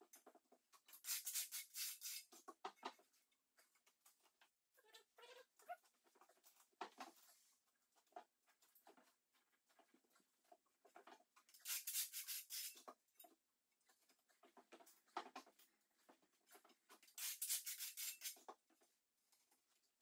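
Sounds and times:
trowel scraping tiles: 0.9 - 2.4, 11.6 - 12.9, 17.2 - 18.5.

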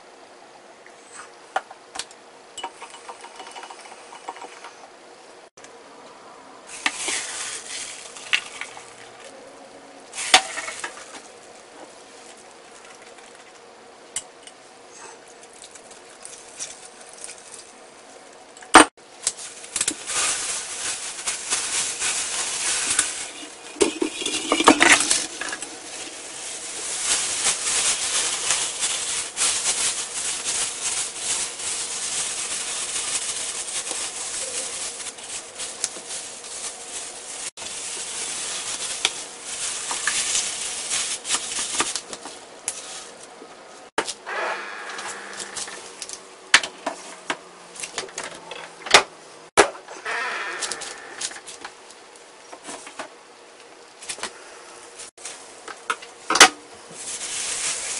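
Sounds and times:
plastic bag crinkling: 6.7 - 9.3, 19.1 - 43.2, 56.9 - 57.9.

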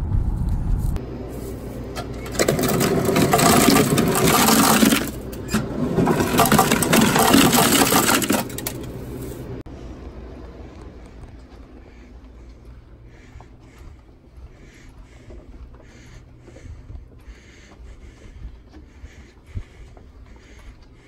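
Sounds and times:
ice machine humming: 1.0 - 10.2
ice cubes clattering into bucket: 2.2 - 8.9.

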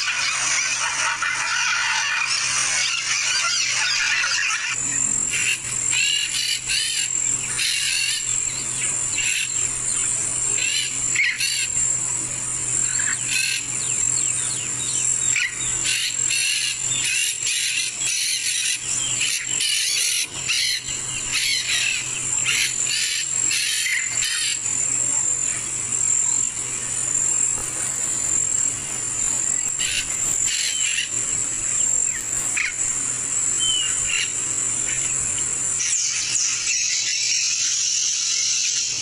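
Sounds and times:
insect drone: 0.0 - 39.0
bird chirps: 12.6 - 39.0.

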